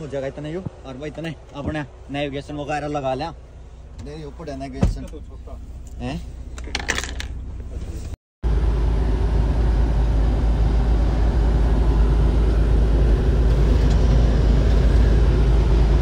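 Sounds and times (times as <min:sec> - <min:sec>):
truck cruising drone: 0:07.8 - 0:16.0.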